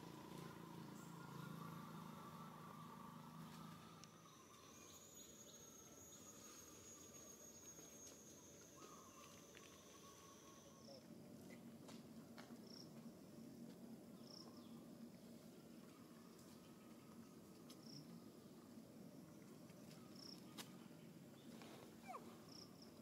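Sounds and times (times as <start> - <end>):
high-pitched insect drone: 0.9 - 11.0.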